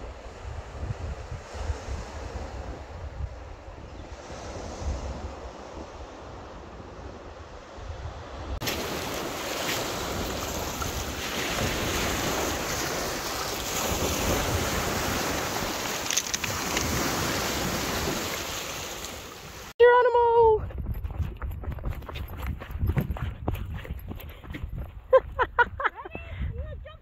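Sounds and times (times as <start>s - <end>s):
wind buffeting microphone: 0.0s - 18.4s, 20.4s - 27.0s
waves washing over pebbles: 8.6s - 19.7s.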